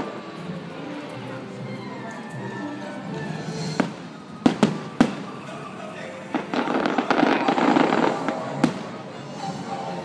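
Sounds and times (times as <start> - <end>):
fireworks bangs: 3.7 - 9.2
rapid popping of fireworks: 3.7 - 9.2.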